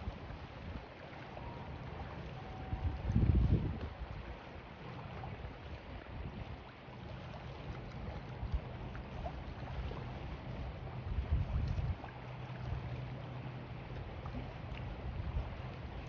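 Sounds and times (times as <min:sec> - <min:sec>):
water splashing against pier: 0:00.0 - 0:16.0
wind gusting across microphone: 0:02.6 - 0:04.2.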